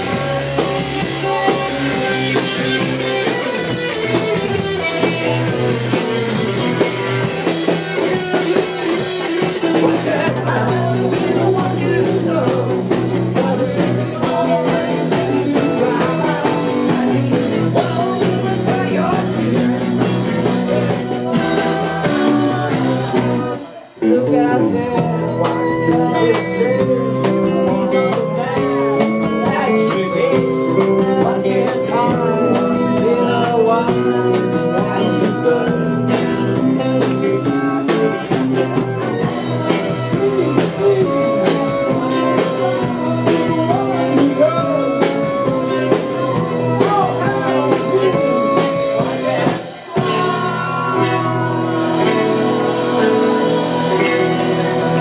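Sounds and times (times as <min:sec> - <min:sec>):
drums: 0:00.0 - 0:55.0
electric guitars: 0:00.0 - 0:55.0
person singing: 0:00.0 - 0:55.0.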